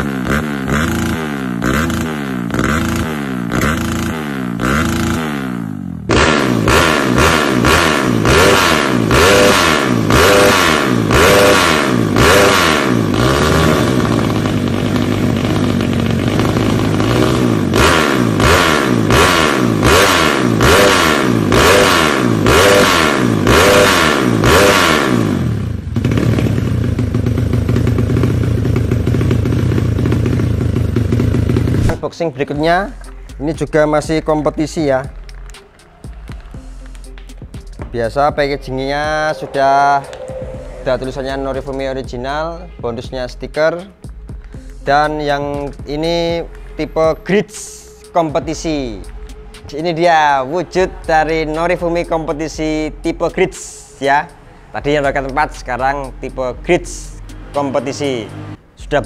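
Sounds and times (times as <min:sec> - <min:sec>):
motorcycle engine idling: 0:00.0 - 0:32.0
motorcycle engine revving: 0:00.0 - 0:32.0, 0:33.8 - 0:59.0.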